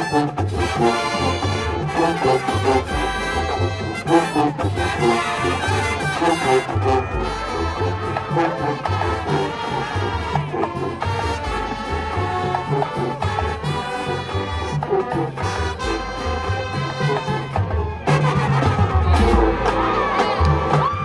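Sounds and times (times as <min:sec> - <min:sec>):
marching band playing: 0:00.0 - 0:21.0
trombones and trumpets: 0:00.0 - 0:21.0.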